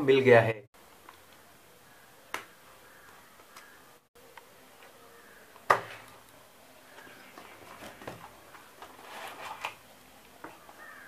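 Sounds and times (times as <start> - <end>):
cardboard scraping and rustling: 7.0 - 9.9.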